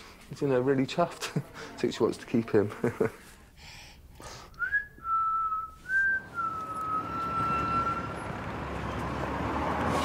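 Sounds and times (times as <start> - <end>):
person whistling: 4.6 - 8.1
road traffic: 4.6 - 10.0.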